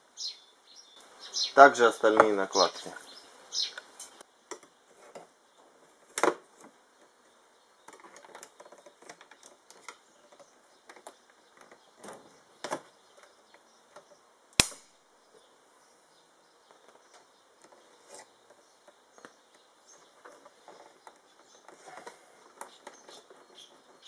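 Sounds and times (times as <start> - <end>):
sharp plastic snap: 14.6 - 15.0.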